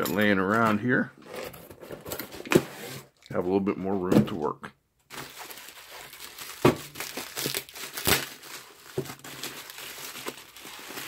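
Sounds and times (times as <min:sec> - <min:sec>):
bubble wrap crinkling: 0:05.1 - 0:11.0
bubble wrap sharp crackles: 0:05.1 - 0:11.0.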